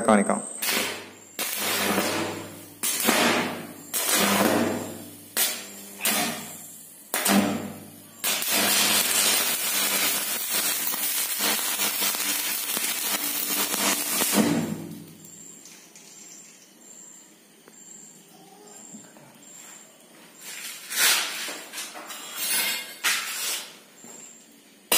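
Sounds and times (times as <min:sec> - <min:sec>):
low mains hum: 0:00.0 - 0:24.9
arc strikes: 0:00.6 - 0:15.2
crackling welding arc: 0:00.6 - 0:15.8.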